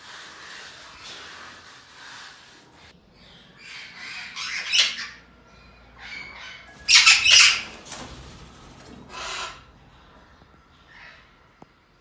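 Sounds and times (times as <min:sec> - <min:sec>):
parrot squawking: 0:03.6 - 0:05.2, 0:06.0 - 0:07.8, 0:09.1 - 0:09.7.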